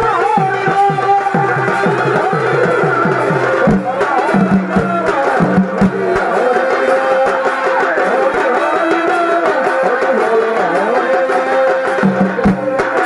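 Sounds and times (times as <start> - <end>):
reed pipe melody: 0.0 - 9.3.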